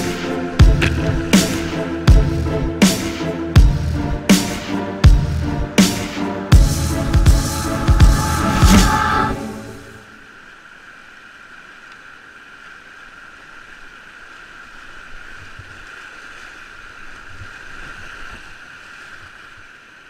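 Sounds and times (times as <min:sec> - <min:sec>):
whitewater rapids rushing: 0:00.0 - 0:03.6
short low thumps: 0:00.6 - 0:04.3, 0:05.0 - 0:09.4.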